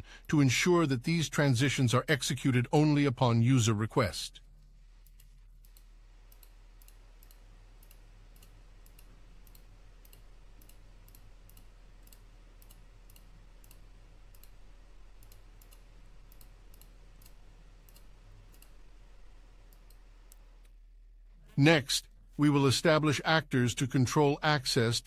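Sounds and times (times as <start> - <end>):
low steady hum: 0.0 - 25.0
faint evenly spaced clicks: 4.4 - 21.0.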